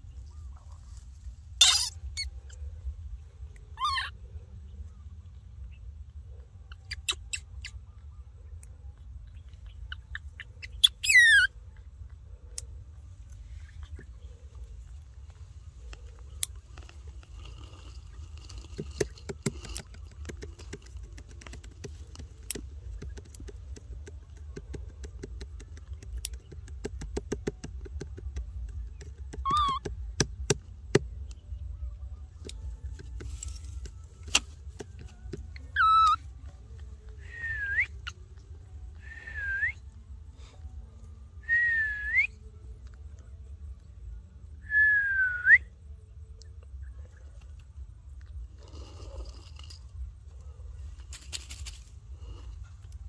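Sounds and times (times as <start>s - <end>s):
baby monkey coo calls: 1.6s - 2.6s, 3.7s - 4.2s, 6.7s - 7.9s, 9.4s - 11.6s, 29.4s - 29.9s, 35.6s - 36.3s.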